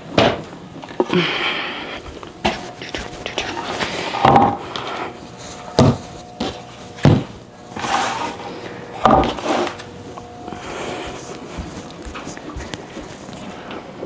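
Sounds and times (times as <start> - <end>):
items knocking on a table: 4.2 - 4.6, 5.8 - 6.0, 7.0 - 7.3, 9.0 - 9.4.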